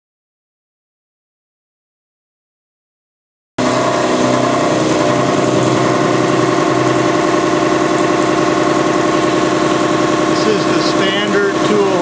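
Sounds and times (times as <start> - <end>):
milling machine cutting metal: 3.6 - 12.0.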